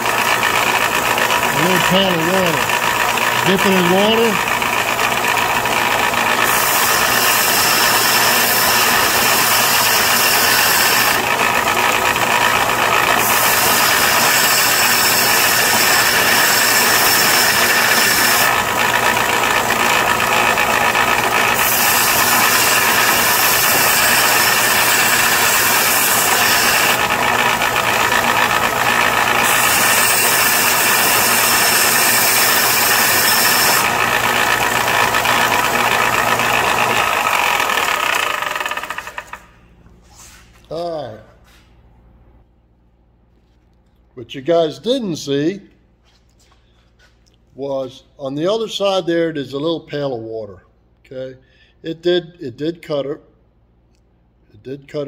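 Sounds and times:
metal grinding on sander belt: 0:00.0 - 0:39.6
belt sander running: 0:00.0 - 0:39.9.

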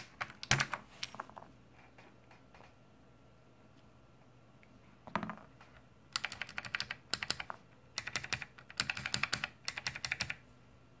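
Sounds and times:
clicky keyboard typing: 0:00.0 - 0:00.8, 0:05.6 - 0:10.4.

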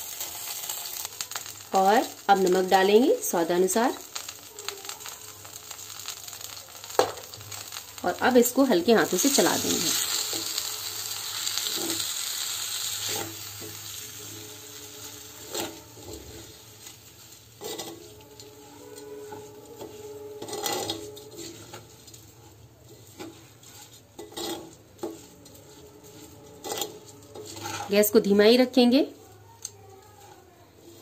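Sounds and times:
rustle of grains: 0:00.0 - 0:28.1
sizzle from hot pot: 0:00.0 - 0:31.0
metal spoon stirring in clay pot: 0:13.0 - 0:31.0
spoon scraping and knocking pot: 0:17.6 - 0:22.3, 0:22.9 - 0:27.9.

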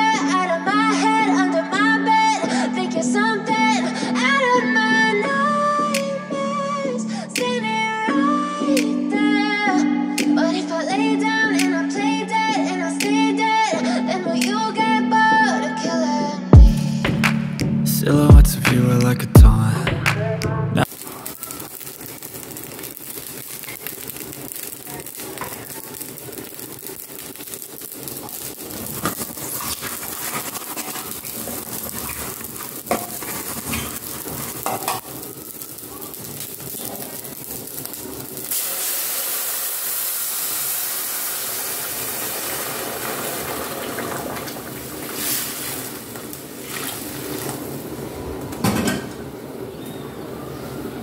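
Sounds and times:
rice sizzling in oil: 0:20.8 - 0:48.0
water hissing in hot pan: 0:20.8 - 0:48.0.

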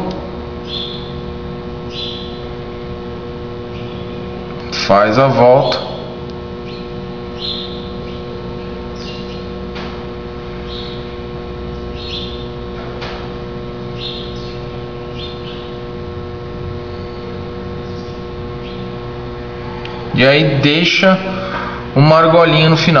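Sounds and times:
steady tonal hum: 0:00.0 - 0:23.0
bird chirping: 0:00.6 - 0:02.6, 0:03.7 - 0:04.3, 0:06.6 - 0:09.6, 0:10.6 - 0:12.6, 0:13.9 - 0:15.8, 0:17.0 - 0:19.1.

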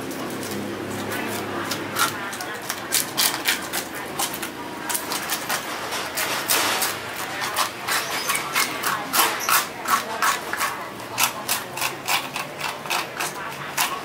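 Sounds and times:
fish scaler scraping scales: 0:00.4 - 0:14.0.

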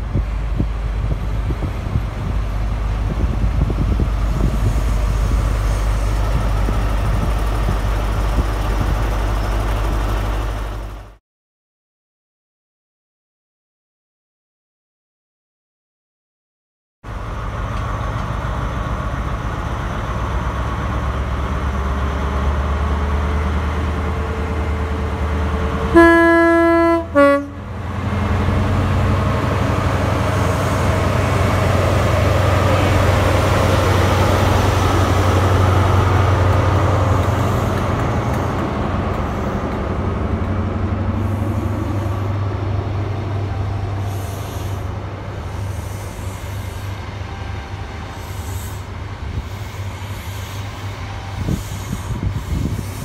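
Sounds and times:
diesel train engine drone: 0:00.0 - 0:11.2, 0:17.0 - 0:53.0
two-tone train horn: 0:25.8 - 0:27.7.

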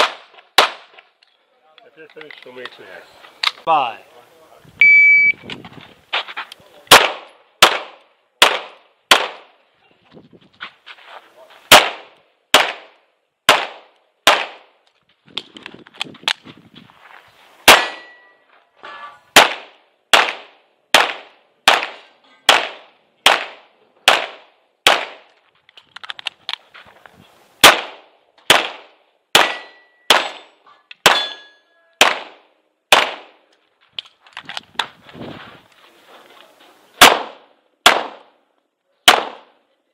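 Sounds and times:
pistol shots: 0:00.0 - 0:01.0, 0:06.9 - 0:09.5, 0:11.7 - 0:14.7, 0:17.7 - 0:18.2, 0:19.4 - 0:25.3, 0:27.6 - 0:33.4, 0:37.0 - 0:38.4, 0:39.0 - 0:39.6.

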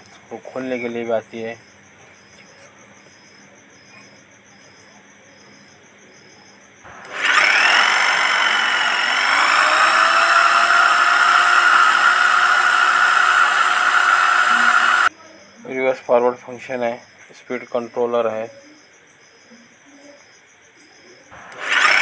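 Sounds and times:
electric drill motor whine: 0:06.9 - 0:15.1, 0:21.3 - 0:22.0.

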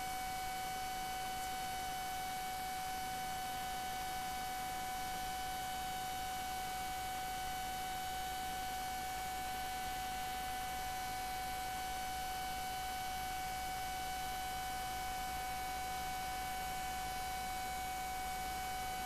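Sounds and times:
electrical hum: 0:00.0 - 0:04.0.

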